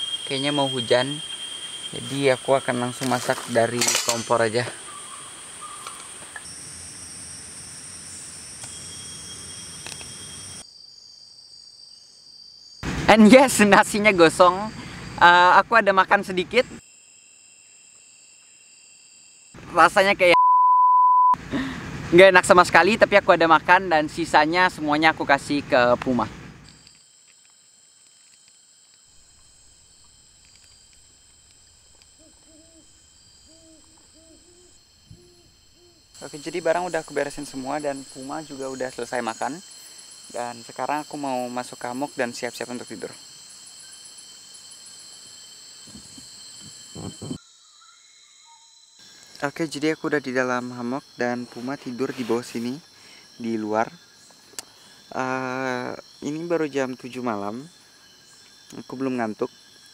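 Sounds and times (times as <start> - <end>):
insects chirring high-pitched: 0.0 - 20.4, 21.6 - 59.9
lower insect tone: 0.0 - 59.9
night animal hooting: 31.8 - 36.4.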